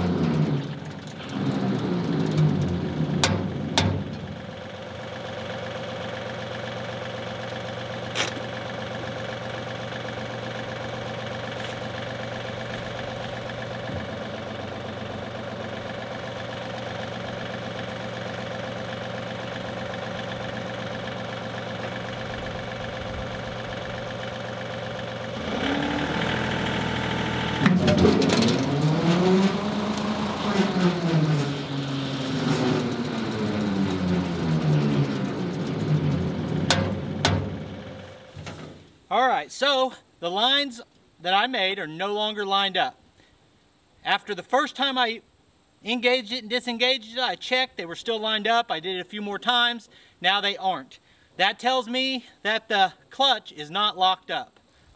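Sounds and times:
diesel tractor idling: 0:00.0 - 0:39.1.

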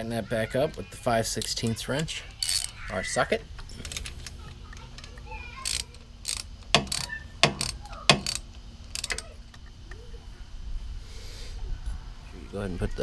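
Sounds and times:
socket ratchet clicking: 0:02.3 - 0:03.0, 0:03.8 - 0:09.8.

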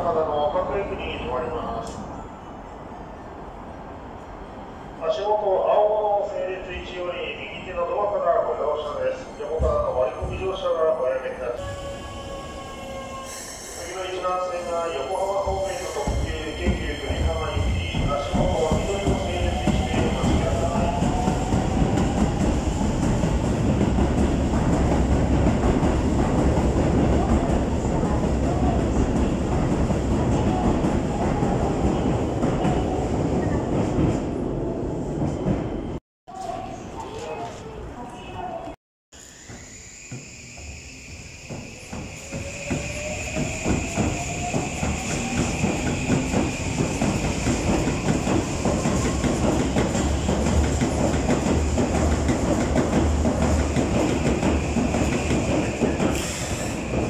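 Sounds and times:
electric train running past: 0:11.3 - 0:34.2, 0:39.2 - 0:57.0
train motor whine: 0:39.2 - 0:43.7
train wheels clacking on rails: 0:41.4 - 0:57.0.

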